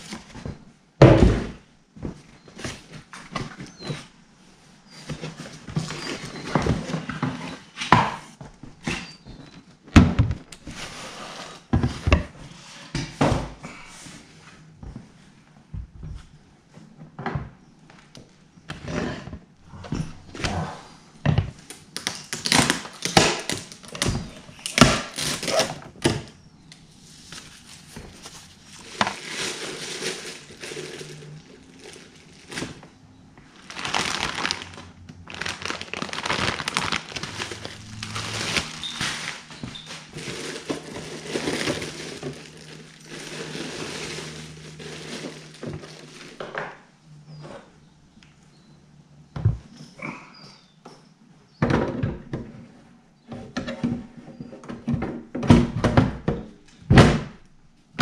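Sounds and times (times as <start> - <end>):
plastic bags crinkling: 27.4 - 46.5.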